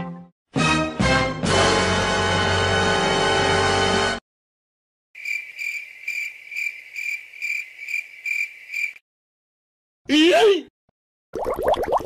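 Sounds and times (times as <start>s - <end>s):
crickets chirping: 5.2s - 9.0s.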